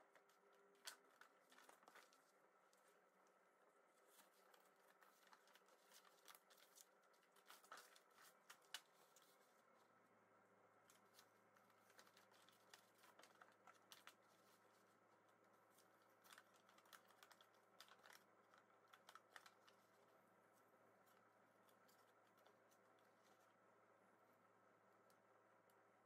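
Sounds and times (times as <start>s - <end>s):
soft paper crackles: 0.0s - 26.0s
paper sheets crinkling and rustling: 0.1s - 3.0s, 3.9s - 9.6s, 10.8s - 20.1s.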